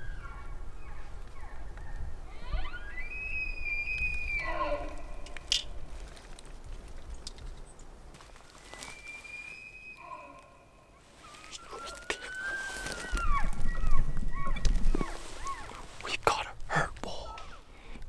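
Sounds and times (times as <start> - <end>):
elk bugling: 11.2 - 16.0.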